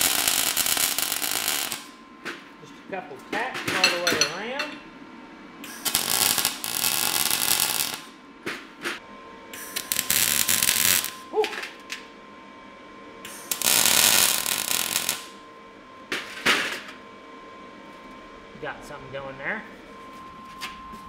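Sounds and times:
welder arc crackling and sizzling: 0.0s - 2.0s, 5.6s - 8.2s, 9.6s - 12.1s, 13.2s - 15.4s.

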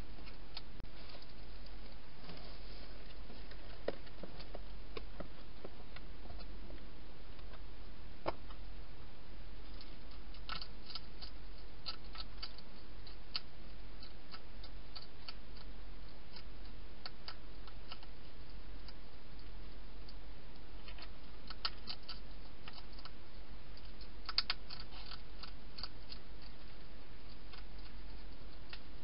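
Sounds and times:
steady low hum: 0.0s - 29.0s
hedgehog chewing dry food: 9.6s - 29.0s.

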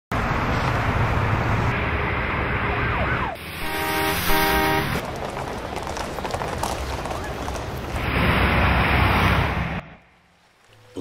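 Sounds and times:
cars passing: 0.1s - 10.9s
vehicle horn blasts: 3.6s - 5.0s.

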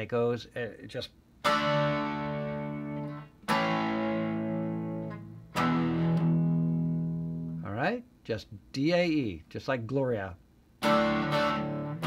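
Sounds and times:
electric guitar chords ringing: 1.4s - 7.7s, 10.8s - 12.0s.

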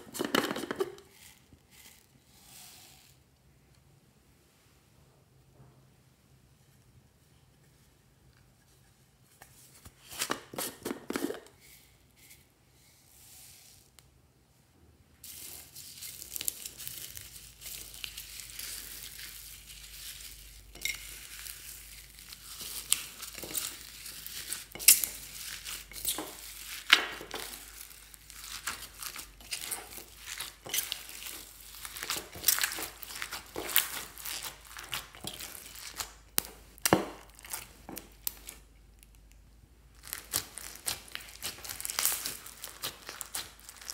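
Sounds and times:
hands squishing slime: 16.0s - 38.7s, 40.0s - 43.9s.

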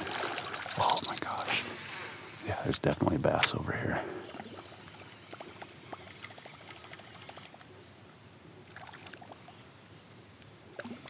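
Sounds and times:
water drips and small splashes: 0.0s - 2.1s, 4.2s - 7.7s, 8.6s - 9.7s, 10.7s - 11.0s.

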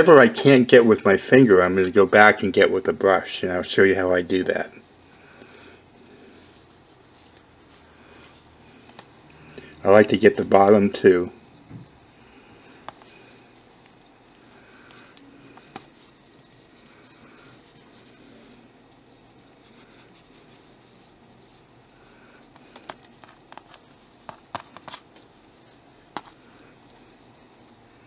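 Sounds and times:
fingers rubbing clay: 15.7s - 18.6s.

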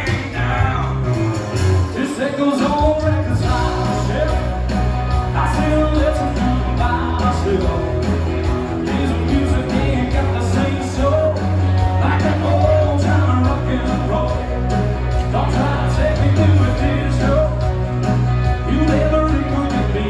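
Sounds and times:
person singing: 0.0s - 20.0s
strong bass line: 0.0s - 20.0s.

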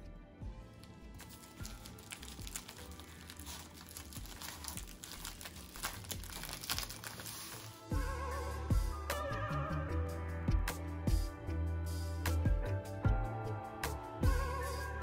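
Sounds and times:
background music: 0.0s - 15.0s
seaweed sheet crinkling: 0.8s - 7.9s.

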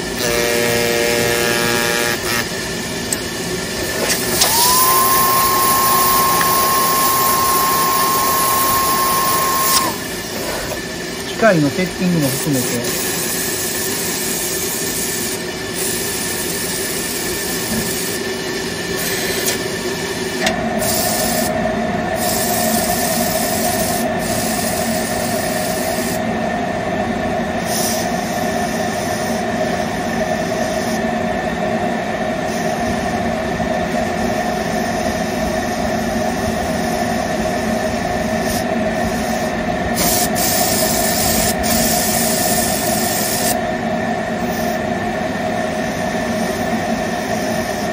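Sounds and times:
machine hum: 0.0s - 14.0s
steam hissing from gun: 2.2s - 21.6s, 22.2s - 26.2s, 27.6s - 31.1s, 36.6s - 43.6s, 44.4s - 44.9s
steady high tone: 4.4s - 10.2s.

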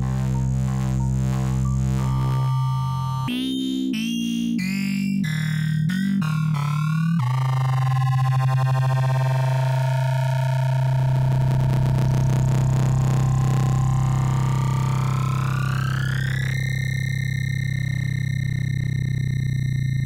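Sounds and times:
low synthesizer drone: 0.0s - 3.3s, 5.2s - 20.0s
choppy shifting synth chords: 0.0s - 7.8s.

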